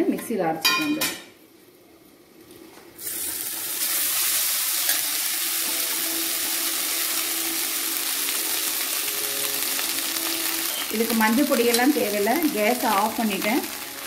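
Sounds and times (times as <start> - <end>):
rice sizzling in hot oil: 3.0 - 14.0.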